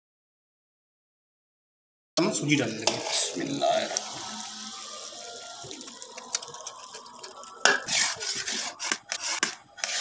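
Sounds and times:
metal ladle scraping a pan: 2.5s - 5.6s, 6.2s - 10.0s
semolina pouring into bubbling syrup: 2.5s - 8.2s.

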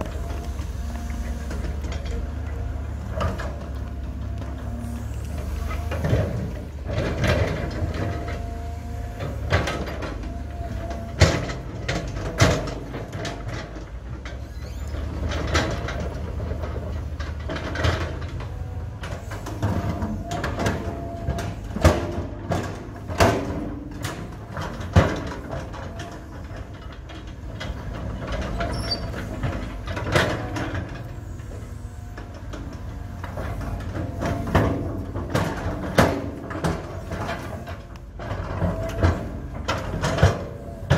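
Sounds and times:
excavator diesel engine rumbling: 0.0s - 40.9s
steel bucket scraping rocky soil: 26.1s - 40.9s.

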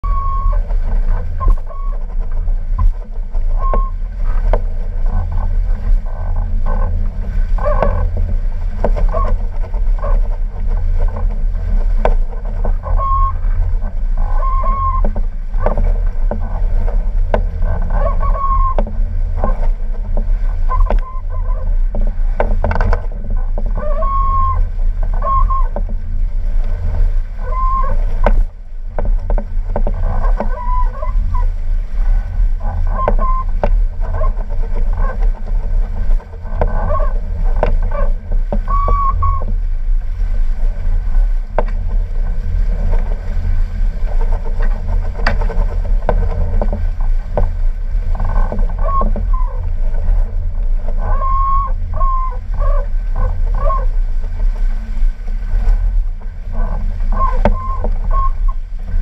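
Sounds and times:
short squeaking tones: 0.0s - 4.1s, 12.4s - 15.8s, 17.6s - 18.8s, 20.5s - 21.8s, 23.7s - 25.9s, 27.4s - 28.0s, 30.0s - 31.5s, 32.6s - 35.2s, 36.4s - 39.5s, 50.9s - 53.9s, 56.6s - 58.6s
water rushing past hulls: 0.0s - 59.0s
wind buffeting microphone: 0.0s - 59.0s.

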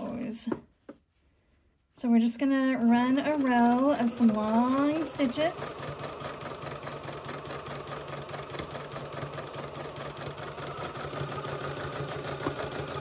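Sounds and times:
sewing machine stitching: 2.8s - 13.0s.

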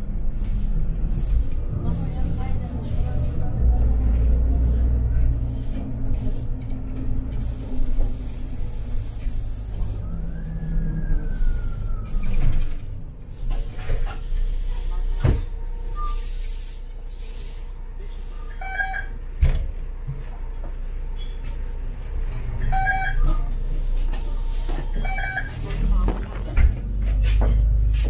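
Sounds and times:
bus engine rumble: 0.0s - 28.0s
air brake hisses: 4.6s - 6.7s, 7.4s - 10.1s, 13.3s - 18.6s, 23.6s - 25.0s
short beep: 22.7s - 23.4s.

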